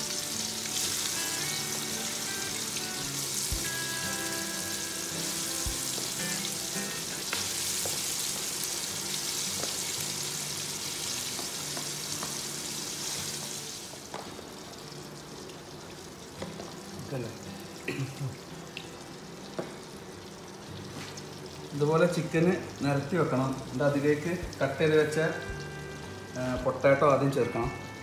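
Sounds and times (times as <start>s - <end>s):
chicken sizzling in hot oil: 0.0s - 28.0s.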